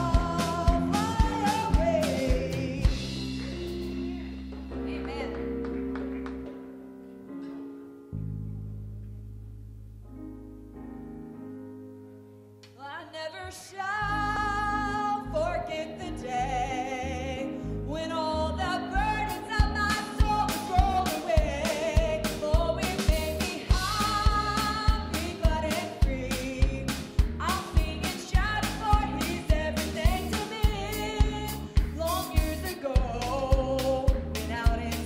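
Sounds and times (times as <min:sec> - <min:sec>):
woman singing: 0:00.0 - 0:04.3, 0:12.8 - 0:35.0
drums keeping a beat: 0:00.0 - 0:06.2, 0:19.6 - 0:35.0
worship band playing: 0:00.0 - 0:06.7.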